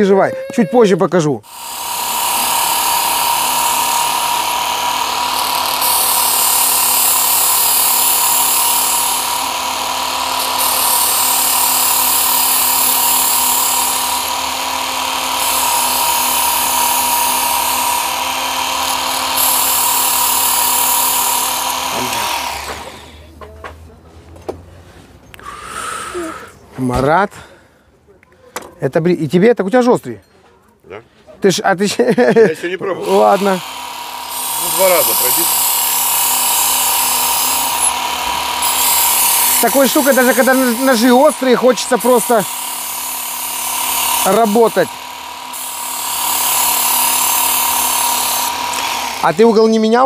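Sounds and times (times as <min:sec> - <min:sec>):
blade grinding on belt: 0:00.7 - 0:23.3, 0:32.0 - 0:50.0
belt knife sharpener whining: 0:01.5 - 0:23.3, 0:32.9 - 0:50.0.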